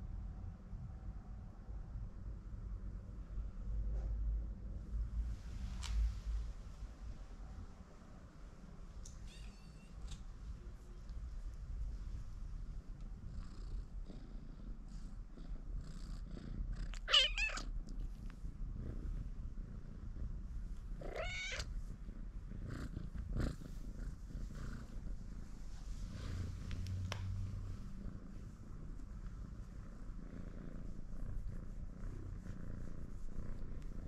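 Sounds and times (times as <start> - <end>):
kitten purring: 9.0 - 34.0
kitten meowing: 9.2 - 10.0, 17.0 - 17.7, 21.1 - 21.7.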